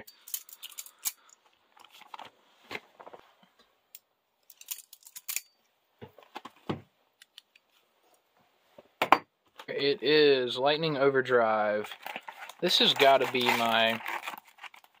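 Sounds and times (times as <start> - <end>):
knife cutting plastic wrap: 11.9 - 15.0.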